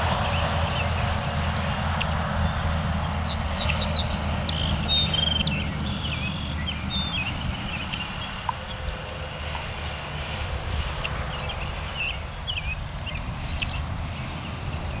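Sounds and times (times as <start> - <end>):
wind buffeting microphone: 0.0 - 15.0
high bird chirps: 0.1 - 10.1.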